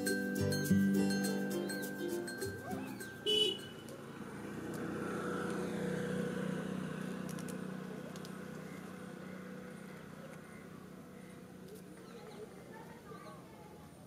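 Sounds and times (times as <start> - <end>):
motor vehicle passing by: 2.6 - 12.7.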